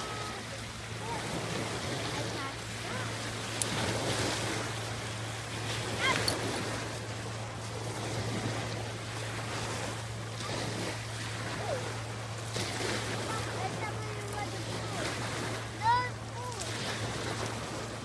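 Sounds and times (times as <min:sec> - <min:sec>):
waves washing onto pebble beach: 0:00.0 - 0:07.0.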